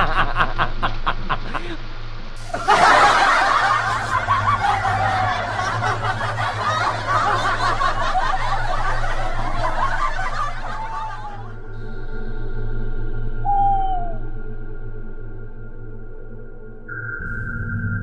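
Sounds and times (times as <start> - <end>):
laughter: 0.0 - 1.8, 2.4 - 11.6.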